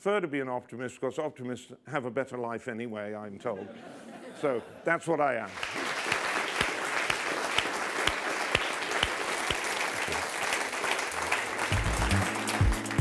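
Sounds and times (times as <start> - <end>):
audience applauding: 5.5 - 13.0
sharp claps: 5.5 - 13.0
music: 11.6 - 13.0.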